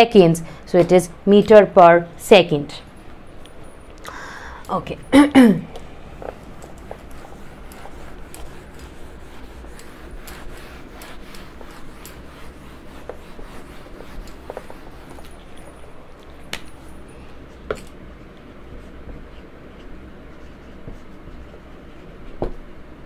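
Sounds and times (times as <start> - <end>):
cloth wiping a whiteboard: 6.2 - 15.8, 18.5 - 22.5.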